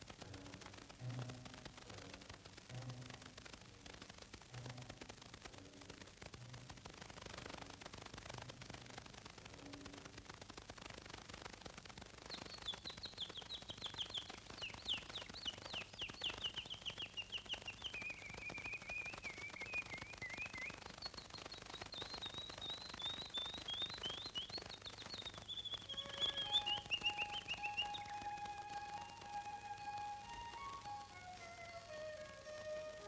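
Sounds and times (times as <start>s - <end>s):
bird chirping: 12.2s - 33.0s
sustained musical bird notes: 12.3s - 33.0s.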